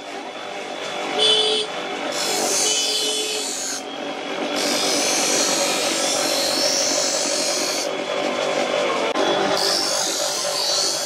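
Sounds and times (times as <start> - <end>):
grinder motor hum: 0.4 - 11.0
blade grinding on wheel: 2.0 - 11.0.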